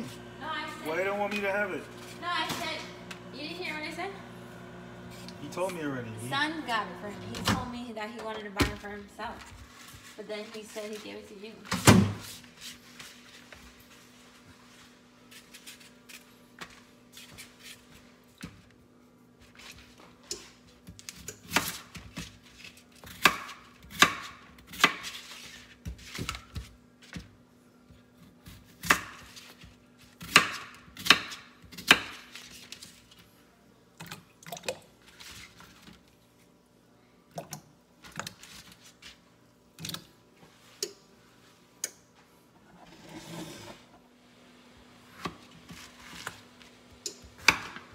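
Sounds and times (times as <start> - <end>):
knife chopping on plastic board: 30.2 - 32.3.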